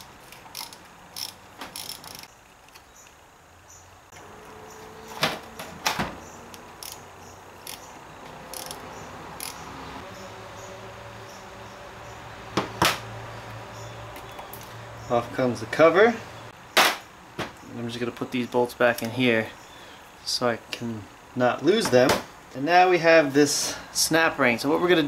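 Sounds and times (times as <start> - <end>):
hand ratchet clicking: 0.0 - 2.8, 6.5 - 8.8, 9.4 - 9.6.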